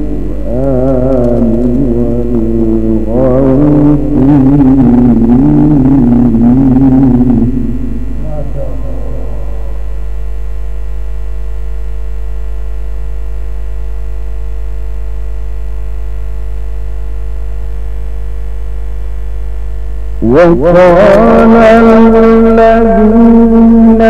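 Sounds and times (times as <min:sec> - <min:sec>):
man chanting recitation: 0:00.0 - 0:09.9, 0:20.2 - 0:24.0
electrical mains hum: 0:00.0 - 0:24.0.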